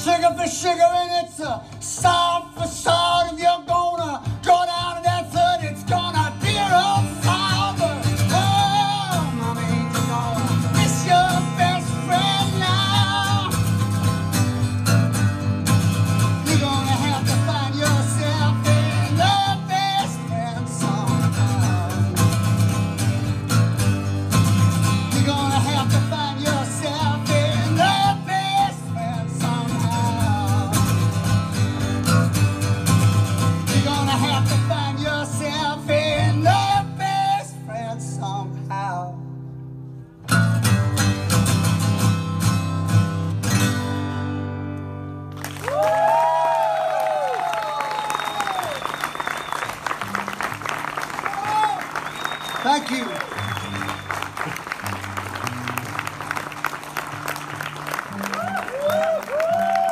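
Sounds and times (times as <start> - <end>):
man singing: 0.0 - 13.8, 16.3 - 22.4, 25.0 - 31.3, 33.6 - 39.3
acoustic guitar strumming: 0.0 - 45.4, 49.0 - 59.9.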